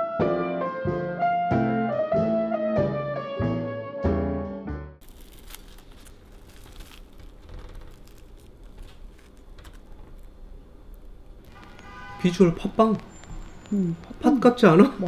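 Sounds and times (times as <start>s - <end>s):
crisp crust tearing and crackling: 5.0s - 12.0s.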